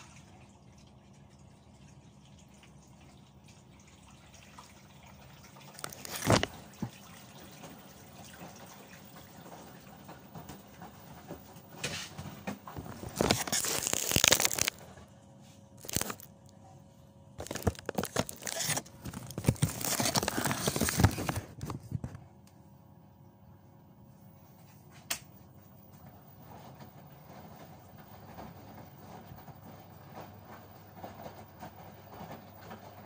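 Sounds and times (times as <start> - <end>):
water spraying into washing machine: 0.0 - 14.9
crackling rustle: 5.7 - 6.6, 12.7 - 15.0, 15.7 - 16.4, 17.4 - 22.0.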